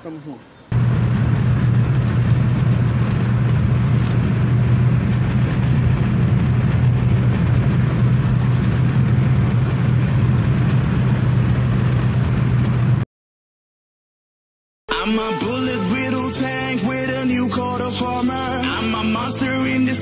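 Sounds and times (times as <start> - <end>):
engine hum inside car: 0.7 - 13.0
tyre and wind noise: 0.8 - 13.0.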